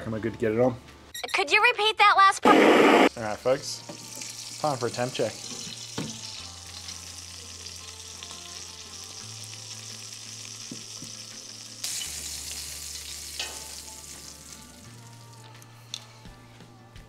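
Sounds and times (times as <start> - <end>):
low background music: 0.0 - 1.2, 3.1 - 17.0
steak sizzling in a pan: 3.7 - 16.1.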